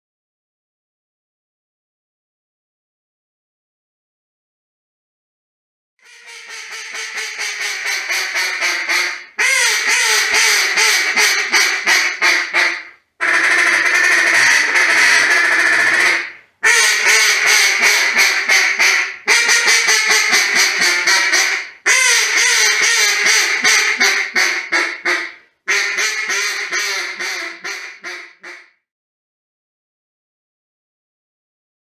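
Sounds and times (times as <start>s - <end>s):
duck call quacks: 6.0s - 28.8s.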